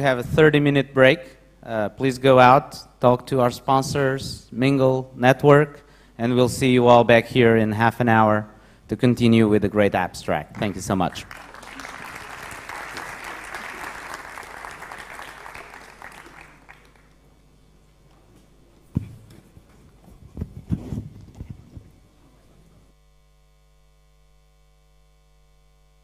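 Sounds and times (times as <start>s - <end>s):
audience applauding: 10.5s - 17.3s.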